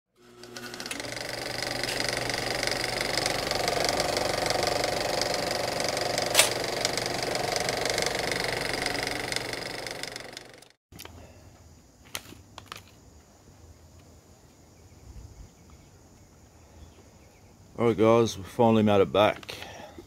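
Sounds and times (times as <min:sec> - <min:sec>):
mechanical ticking buzz: 0:00.2 - 0:10.8
sharp click: 0:06.3 - 0:06.7.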